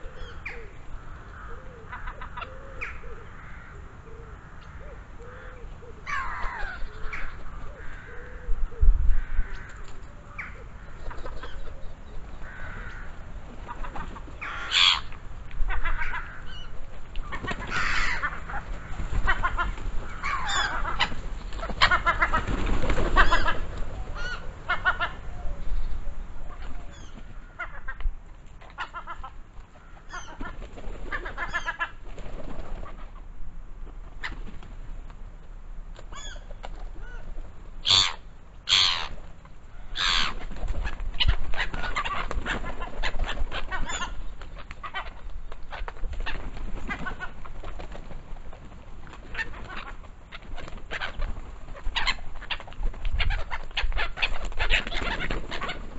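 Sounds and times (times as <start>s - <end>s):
wings flapping: 12.5s - 15.2s, 17.2s - 25.3s, 30.2s - 33.1s, 34.2s - 35.2s, 38.9s - 55.9s.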